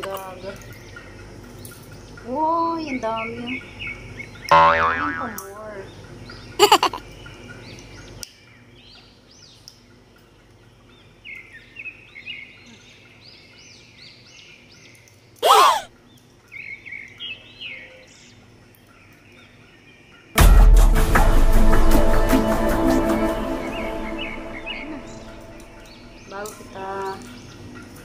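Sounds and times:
parrot calling loudly: 15.4 - 15.9.

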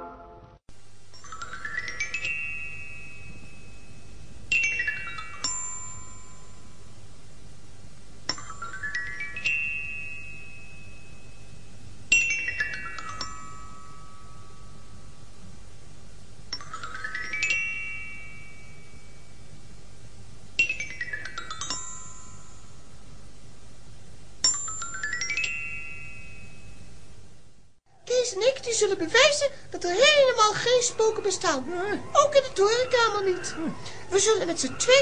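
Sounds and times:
background hiss: 0.0 - 35.0
glockenspiel-like runs: 1.2 - 6.9, 8.3 - 15.3, 16.5 - 19.6, 20.6 - 23.1, 24.4 - 27.0, 28.5 - 35.0.

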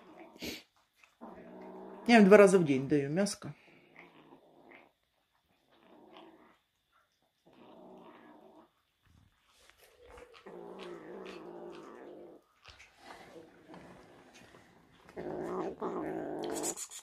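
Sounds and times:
kitten growling: 0.0 - 2.6, 3.6 - 8.8, 9.7 - 17.0.

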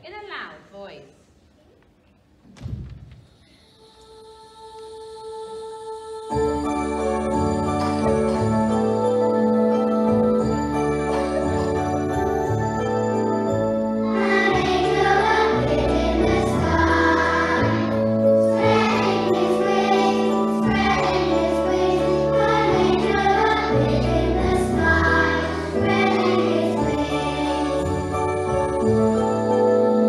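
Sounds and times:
keyboard backing track: 6.4 - 30.0
children singing: 14.0 - 30.0.

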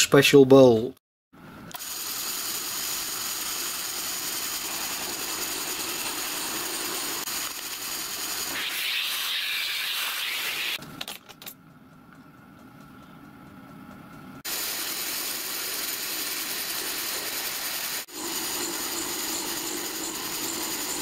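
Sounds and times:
machine spindle cutting metal: 17.0 - 21.0.

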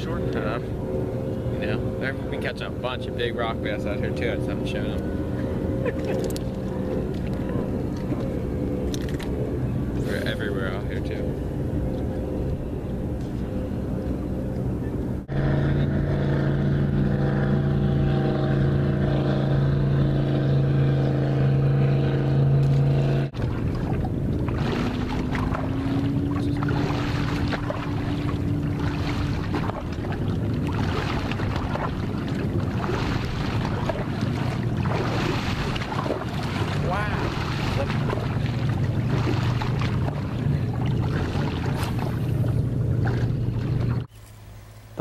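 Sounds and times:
boat motor running: 0.0 - 45.0
water noise: 0.0 - 45.0
wind: 0.0 - 45.0
faint motor tone: 23.8 - 45.0.

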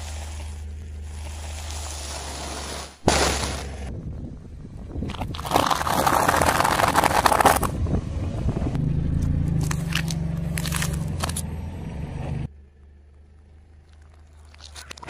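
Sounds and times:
low car engine hum: 0.0 - 15.0
tyre crushing dry pasta: 5.1 - 7.7, 9.6 - 11.4.

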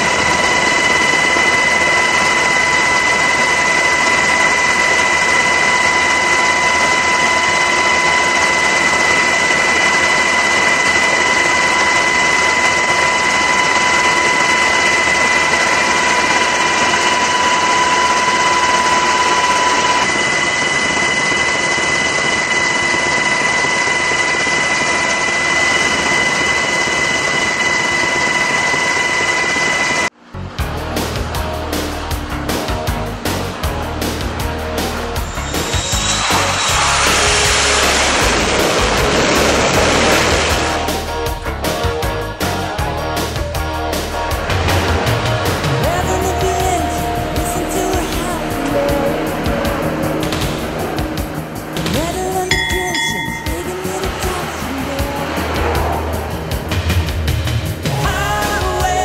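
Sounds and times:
high steady whines: 0.0 - 59.0
aircraft cabin rush: 31.2 - 42.2.

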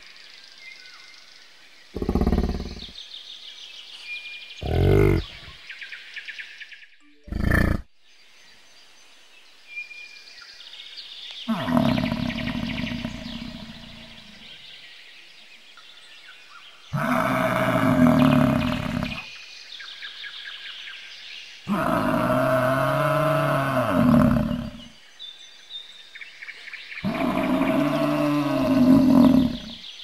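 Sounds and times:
bison bellowing: 27.0 - 29.8.

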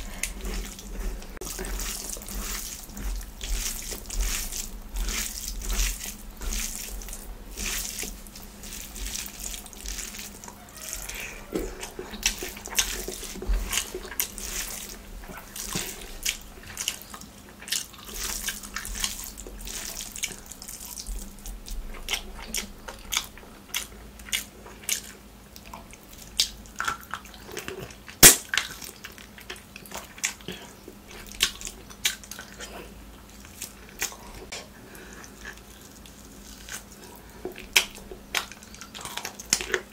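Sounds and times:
fingers squishing rice: 0.0 - 25.2
mouth chewing and smacking: 0.0 - 39.9.

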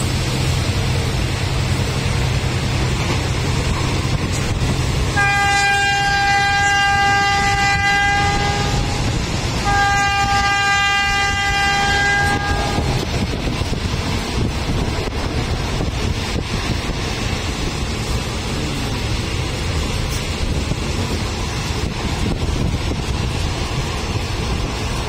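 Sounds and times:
moving train rumble and rushing air: 0.0 - 25.0
train horn blasts: 5.1 - 13.0.

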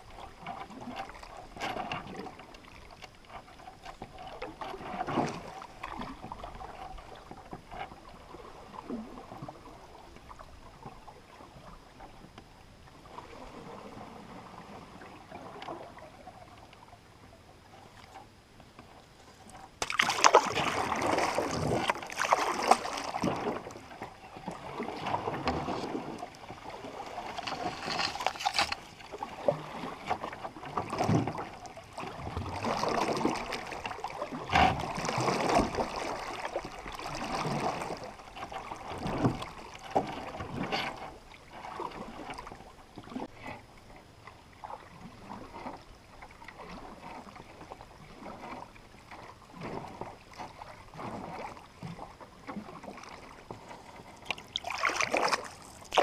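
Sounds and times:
paddle strokes swishing and dripping: 17.8 - 43.5, 44.6 - 56.0.

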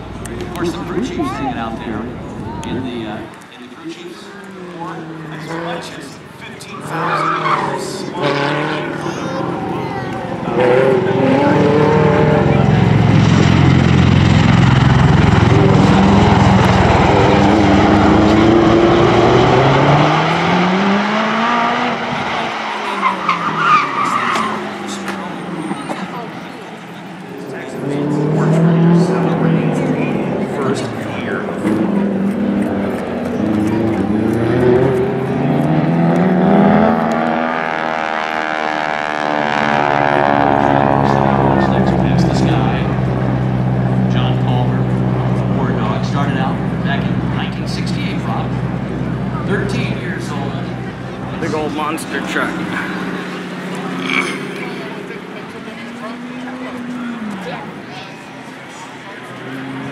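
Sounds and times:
aircraft rotors throbbing drone: 8.8 - 21.1, 28.4 - 59.9
propeller airplane flying past: 37.9 - 47.5.

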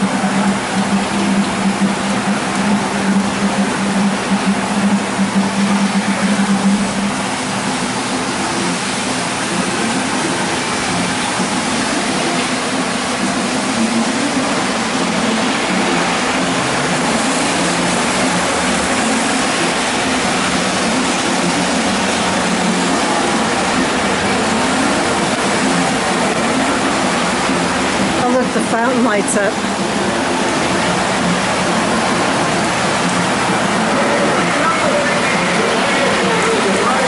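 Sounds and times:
wavering low hum: 0.0 - 37.0.

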